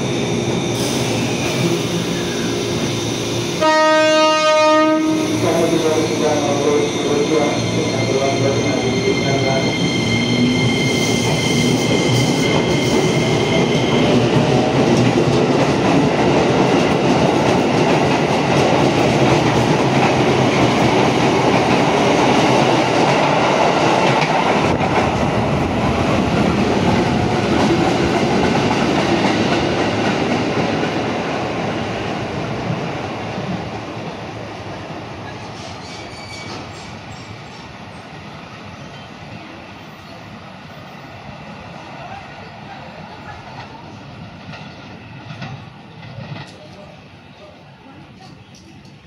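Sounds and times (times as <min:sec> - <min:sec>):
electric train high whine: 0:00.0 - 0:14.8
train wheels running on rails: 0:04.9 - 0:41.9, 0:42.5 - 0:47.2.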